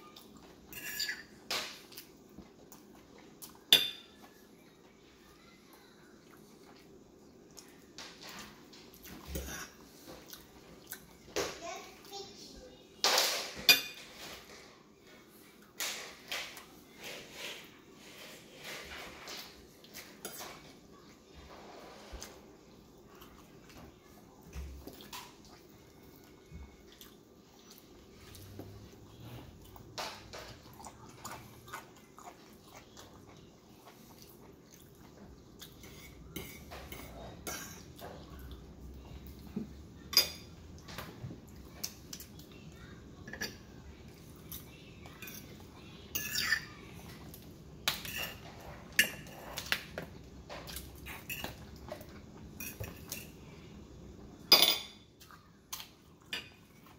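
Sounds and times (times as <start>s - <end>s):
chewing: 5.4s - 11.3s, 23.0s - 39.6s.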